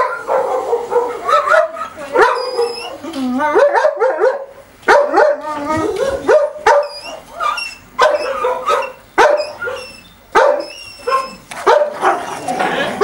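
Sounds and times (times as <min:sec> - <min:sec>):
loud sharp dog bark: 0:00.0 - 0:02.8, 0:03.6 - 0:05.4, 0:06.1 - 0:06.9, 0:08.0 - 0:09.8, 0:10.4 - 0:12.3
dogs barking and yipping: 0:00.0 - 0:13.0.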